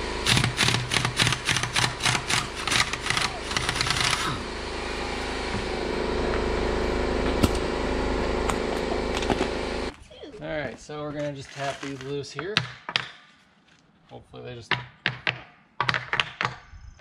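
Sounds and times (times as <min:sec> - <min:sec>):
motor hum: 0:00.0 - 0:11.2
impact wrench hammering: 0:00.2 - 0:04.4.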